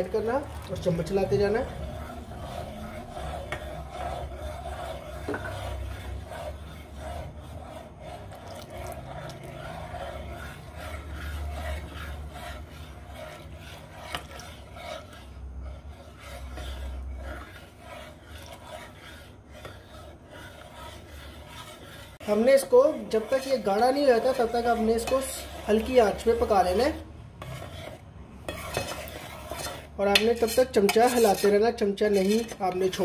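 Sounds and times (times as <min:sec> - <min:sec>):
metal spoon scraping pot: 0:00.0 - 0:33.0.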